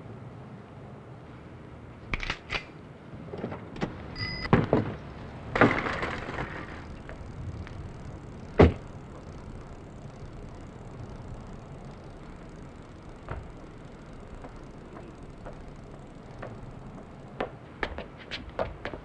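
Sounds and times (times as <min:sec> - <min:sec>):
brief electronic chime: 0:04.2 - 0:04.5.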